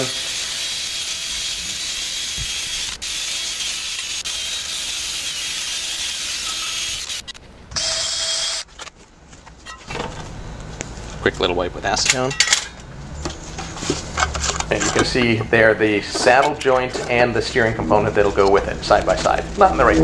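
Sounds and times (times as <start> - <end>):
drill wire brush scratching metal: 0.0 - 8.6.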